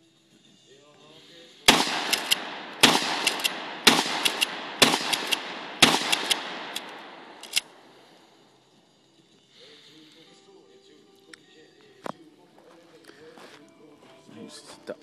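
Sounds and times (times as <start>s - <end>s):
shotgun action clicks: 1.7s - 7.8s
shotgun shots: 1.7s - 8.0s.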